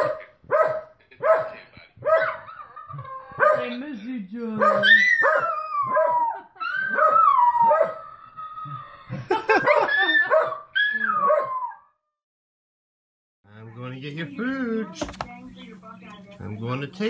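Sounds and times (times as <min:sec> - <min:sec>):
dog yipping: 0:00.0 - 0:03.7, 0:04.6 - 0:08.1, 0:09.6 - 0:11.9
dog howling: 0:04.6 - 0:12.0.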